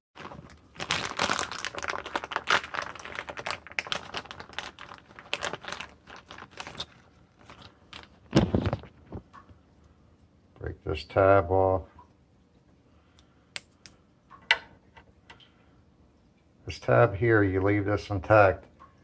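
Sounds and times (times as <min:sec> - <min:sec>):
plastic parts clicking and rattling: 0:00.3 - 0:08.9.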